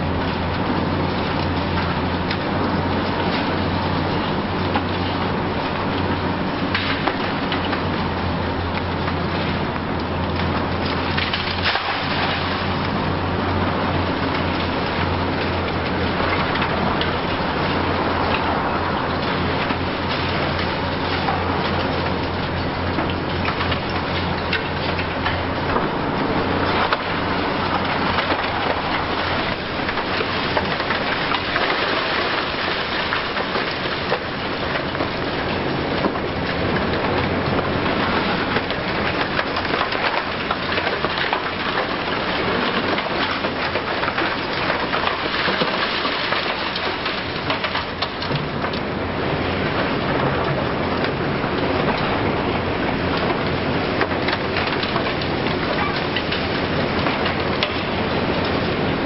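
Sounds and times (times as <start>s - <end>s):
excavator diesel engine humming: 0.0s - 32.6s
concrete crushing and rubble falling: 10.4s - 13.3s, 14.1s - 35.4s, 37.8s - 48.8s.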